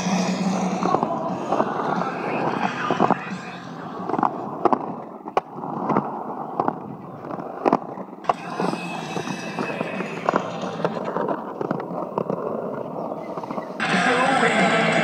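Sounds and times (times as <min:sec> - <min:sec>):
skateboard clicks and knocks: 0:00.0 - 0:13.9
skateboard wheels rolling on concrete: 0:00.0 - 0:15.0.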